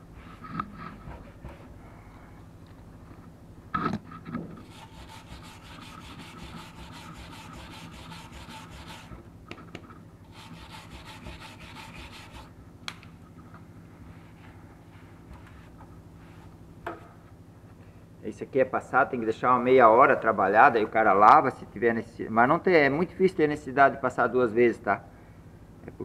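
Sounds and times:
brush scrubbing metal seam: 4.6 - 9.2, 10.3 - 12.5.

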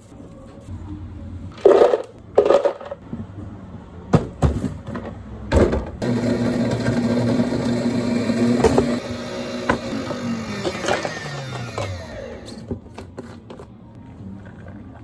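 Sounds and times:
blender motor humming: 6.0 - 12.6.

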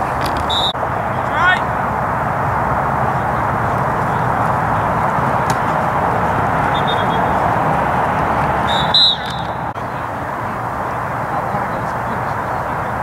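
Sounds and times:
outdoor noise haze: 0.0 - 13.0
faint high whistle tone: 0.5 - 0.8, 6.7 - 7.3, 8.6 - 9.6
referee's whistle blast: 0.5 - 0.8, 6.7 - 7.4, 8.6 - 9.6.

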